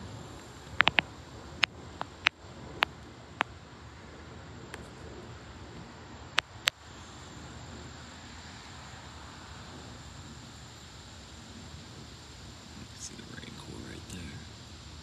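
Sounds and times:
wind rustling leafy trees: 0.0s - 15.0s.

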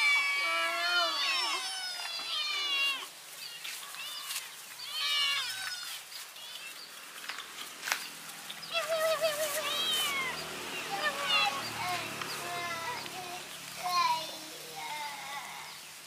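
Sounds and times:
kittens meowing: 0.0s - 6.8s, 8.7s - 13.4s.

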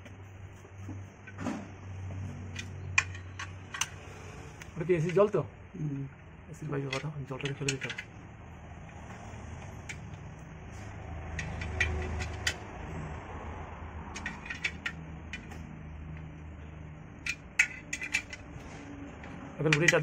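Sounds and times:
low background hum: 0.0s - 20.0s
screwdriver clinking on metal: 6.9s - 8.1s, 11.4s - 12.6s, 14.2s - 15.6s, 17.2s - 18.6s, 19.6s - 20.0s.

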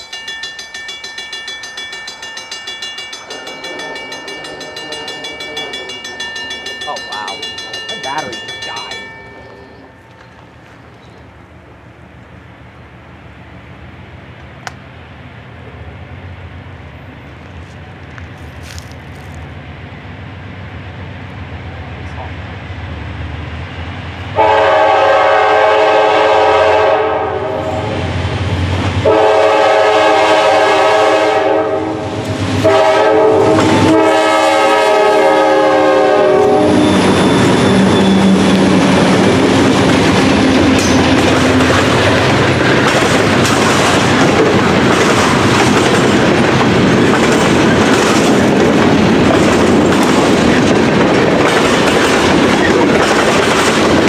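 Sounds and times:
freight cars rumbling on rails: 0.0s - 54.0s
locomotive air horn: 24.4s - 28.0s, 29.0s - 38.9s.

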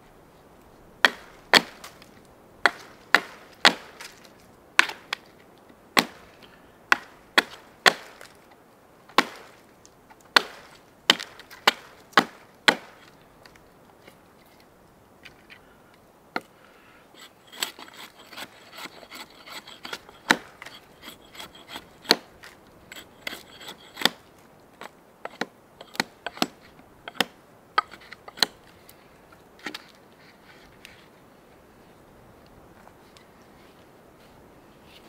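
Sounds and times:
hatchet chopping wood: 1.0s - 1.9s, 2.6s - 4.2s, 4.8s - 5.0s, 6.0s - 6.2s, 6.9s - 8.3s, 9.2s - 9.5s, 10.3s - 13.0s, 17.5s - 24.2s, 25.3s - 28.6s
wood scraping: 17.2s - 24.2s, 27.8s - 31.2s.

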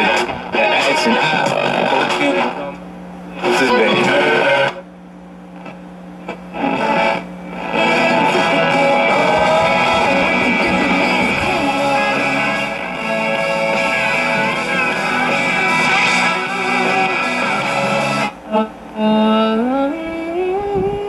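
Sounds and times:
guitar music from a radio speaker: 0.0s - 4.9s, 5.5s - 21.0s.

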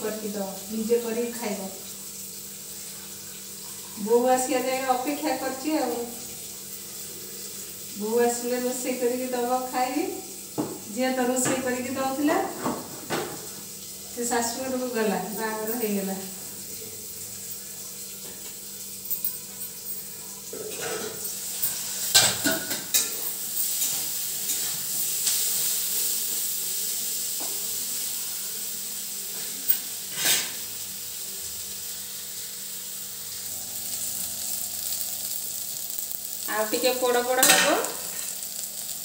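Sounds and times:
vegetables sizzling in hot oil: 0.0s - 39.0s
metal ladle scraping a pan: 30.1s - 30.6s.

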